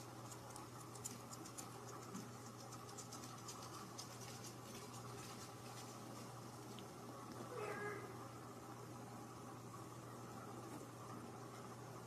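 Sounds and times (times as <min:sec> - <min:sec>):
small clicks and ticks: 0:00.0 - 0:07.4
low steady hum: 0:00.0 - 0:12.0.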